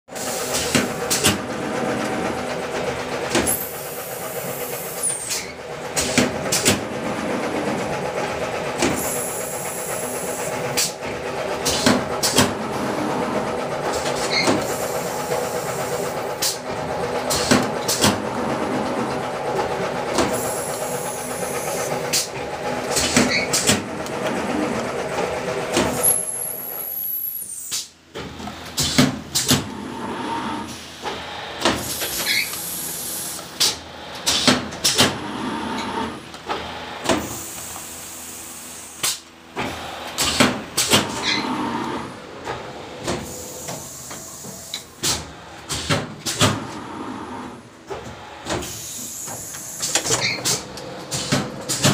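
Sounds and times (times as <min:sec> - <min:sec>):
machine clanks: 0:00.2 - 0:26.5
machine hum: 0:00.4 - 0:27.4, 0:28.1 - 0:51.9.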